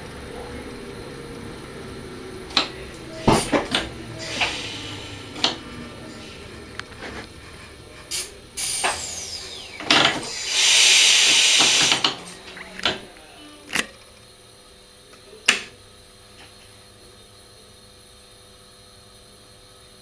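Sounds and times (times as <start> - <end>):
loud air hiss: 1.2 - 13.5
clicks and knocks in a cab: 2.5 - 4.6.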